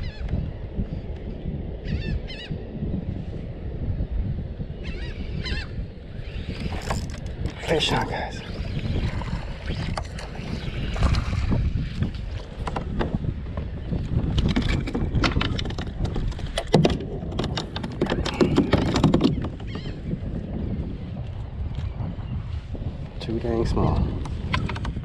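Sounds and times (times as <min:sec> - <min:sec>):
wind rumbling on microphone: 0:00.0 - 0:25.0
gear knocking on plastic hull: 0:14.3 - 0:19.7.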